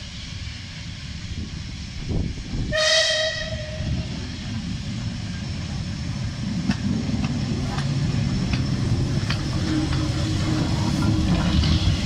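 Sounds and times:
low rumble of steam locomotive: 0.0s - 12.0s
steam locomotive whistle blast: 2.7s - 4.0s.

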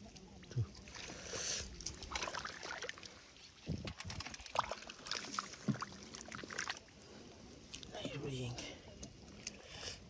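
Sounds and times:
hands splashing in muddy water: 0.2s - 7.0s.

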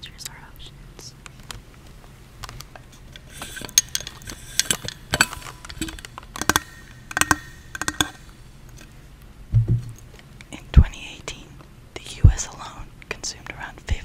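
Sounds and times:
taps and clicks on metal bottle: 3.4s - 8.9s.

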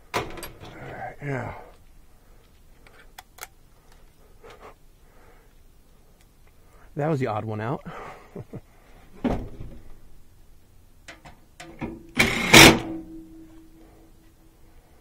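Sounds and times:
loud metal clank ringing: 12.1s - 13.7s.

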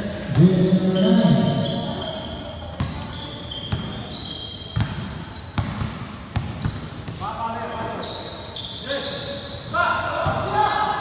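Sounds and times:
sneaker squeaks: 0.2s - 11.0s
basketball bouncing on court: 1.5s - 7.2s, 9.9s - 10.6s.

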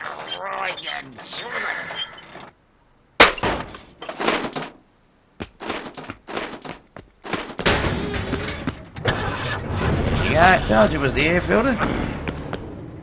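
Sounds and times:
truck engine starting and running: 7.7s - 13.0s.

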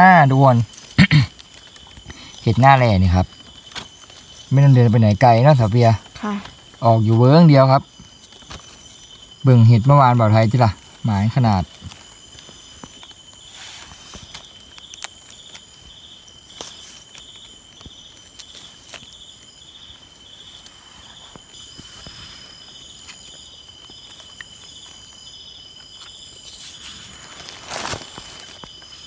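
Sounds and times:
insect high continuous trill: 0.0s - 29.0s
insect pulsed chirp: 0.0s - 29.0s
hands rustling in dry leaves: 10.1s - 29.0s.

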